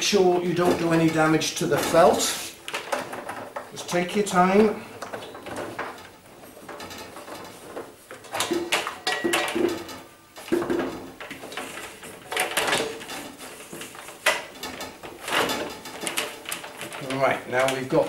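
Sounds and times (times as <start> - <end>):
metallic clunks and rattles of dryer drum: 0.4 - 18.0.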